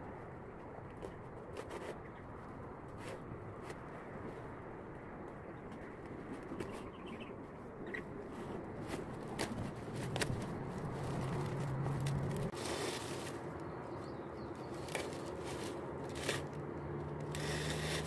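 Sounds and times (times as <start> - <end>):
leaves and ribbon rustling: 8.3 - 13.8, 14.5 - 18.0.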